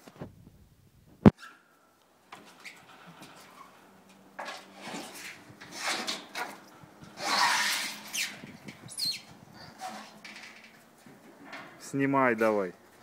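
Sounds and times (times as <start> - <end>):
brief rising squeak: 7.2 - 9.8.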